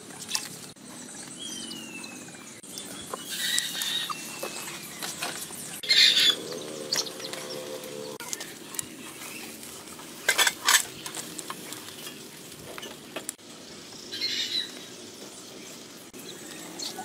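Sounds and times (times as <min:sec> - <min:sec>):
small crackles: 0:07.0 - 0:13.4
fat sizzling on a grill: 0:08.2 - 0:17.0.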